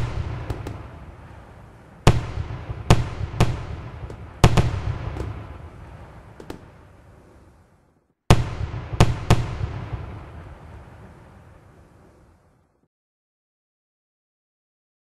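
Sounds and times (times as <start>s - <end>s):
firework light pops: 0.0s - 1.0s, 2.1s - 5.6s, 6.4s - 6.8s
firework bangs with rumble: 0.0s - 1.4s, 2.0s - 6.8s, 8.3s - 10.4s.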